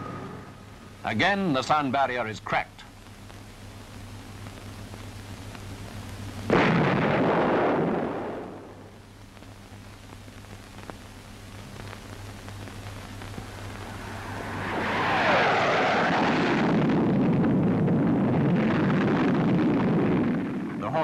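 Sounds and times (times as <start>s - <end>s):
low film soundtrack hum: 0.0s - 21.0s
jet fighter passing low: 13.4s - 20.4s.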